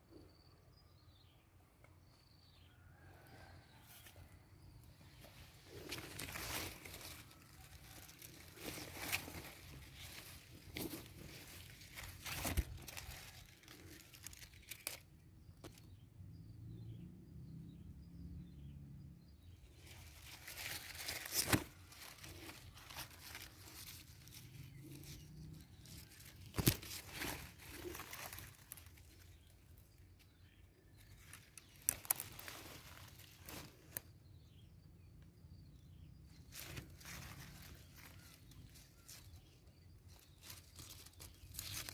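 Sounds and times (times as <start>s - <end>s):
leaves and vines rustling: 3.5s - 15.9s, 19.6s - 34.6s, 36.3s - 41.9s.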